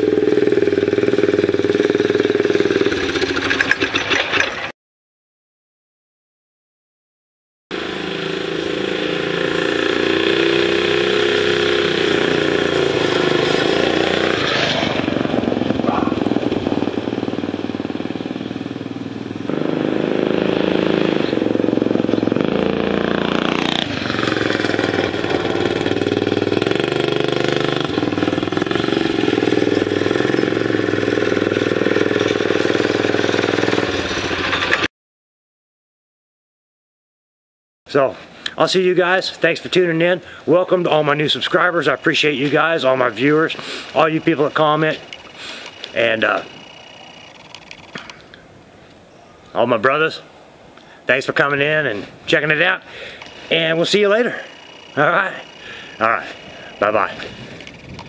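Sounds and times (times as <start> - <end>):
small engine revving: 0.0 - 4.1, 7.7 - 18.7, 19.4 - 34.9, 43.2 - 48.1, 53.0 - 58.0.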